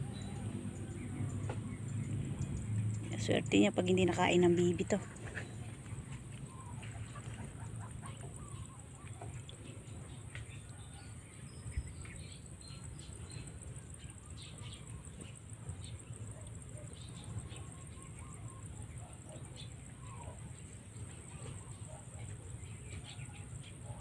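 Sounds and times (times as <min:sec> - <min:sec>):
low constant rumble: 0:00.0 - 0:24.0
bird and poultry calls: 0:05.1 - 0:12.2.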